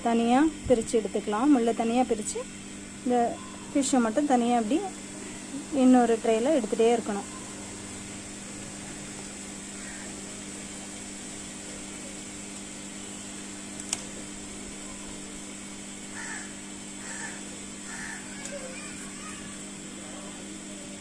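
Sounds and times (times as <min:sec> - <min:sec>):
steady background hum: 0:00.0 - 0:21.0
faint bird-like calls: 0:03.2 - 0:03.9, 0:07.2 - 0:07.9, 0:09.7 - 0:10.3, 0:16.1 - 0:19.7.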